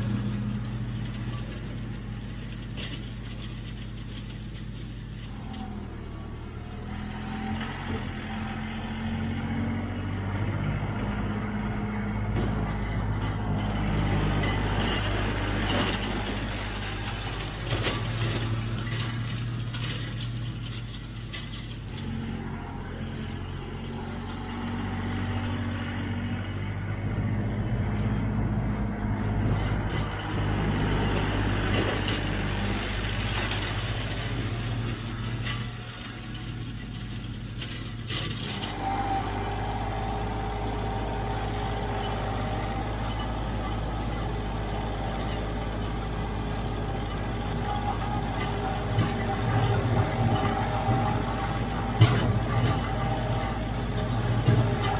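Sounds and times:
tractor diesel engine under load: 0:00.0 - 0:54.9.

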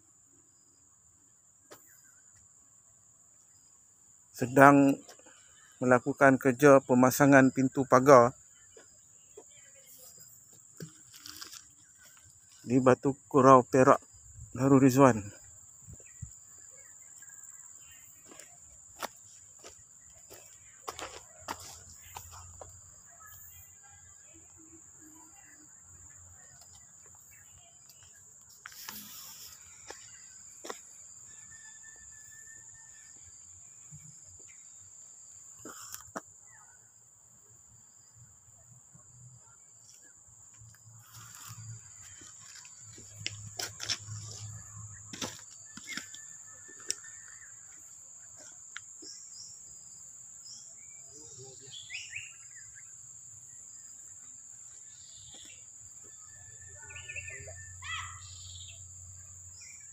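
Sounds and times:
high-pitched insect drone: 0:09.3 - 0:36.2
bird chirps: 0:50.5 - 0:53.0, 0:54.8 - 0:59.9.

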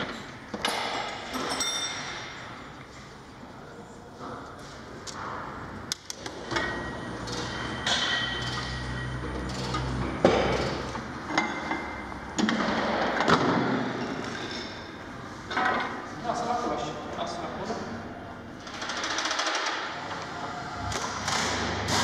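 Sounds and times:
metal tools clinking: 0:00.6 - 0:02.5.

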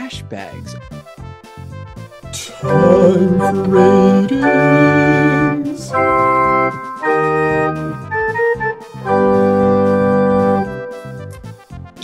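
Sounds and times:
organ jingle chords: 0:02.4 - 0:11.2.

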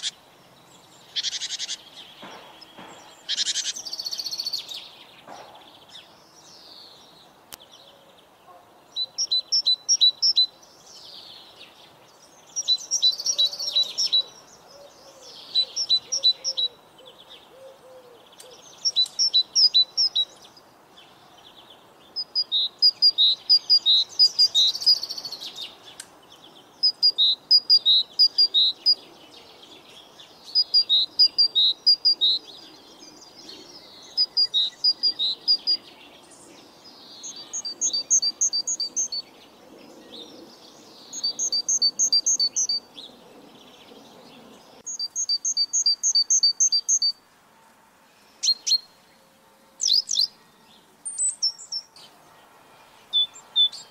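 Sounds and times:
other high bird calls: 0:00.0 - 0:00.2, 0:01.0 - 0:10.6
bird chirping phrases: 0:00.0 - 0:47.2, 0:48.2 - 0:53.9.

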